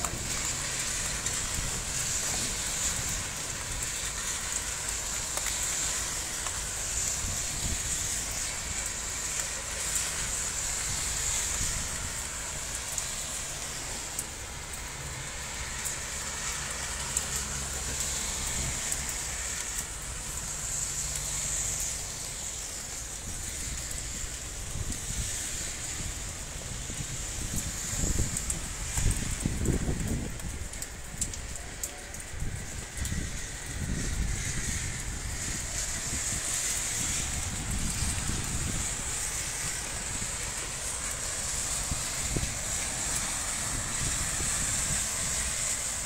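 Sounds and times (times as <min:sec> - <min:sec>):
heavy rain pouring: 0:00.0 - 0:46.0.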